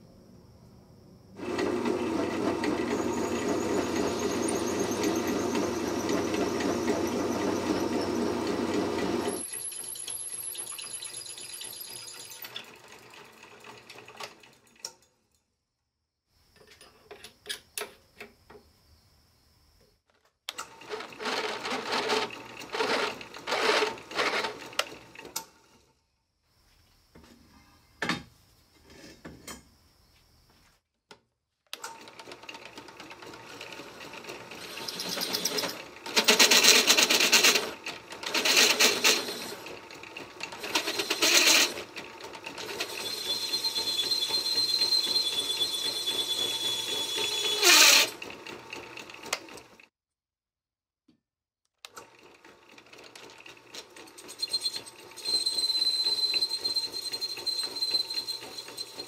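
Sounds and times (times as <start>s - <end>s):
drill press cutting steel: 1.4s - 12.7s, 20.5s - 24.9s, 34.4s - 39.7s, 40.4s - 48.2s, 54.1s - 59.0s
high-pitched steel squeal: 2.8s - 8.3s, 42.7s - 48.1s, 54.2s - 59.0s.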